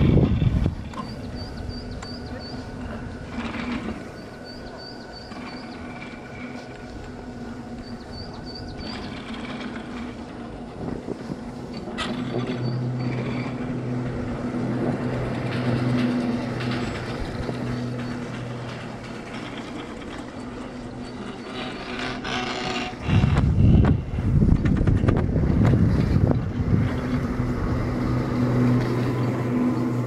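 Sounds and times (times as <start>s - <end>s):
ski lift humming: 0.0s - 30.0s
short high squeaks: 11.7s - 13.8s, 15.8s - 24.0s.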